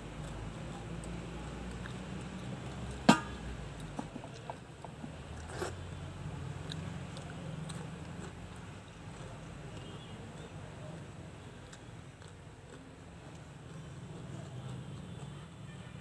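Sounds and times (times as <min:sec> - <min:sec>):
low steady hum: 0:00.0 - 0:16.0
snacks being crunched: 0:06.6 - 0:15.3.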